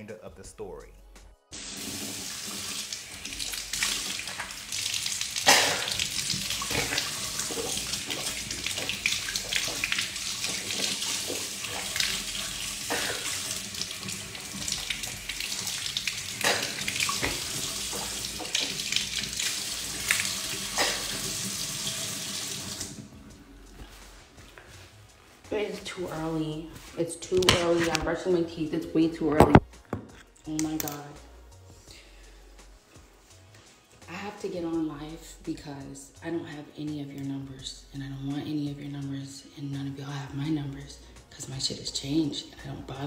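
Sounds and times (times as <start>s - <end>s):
tap running into sink: 5.4s - 22.0s.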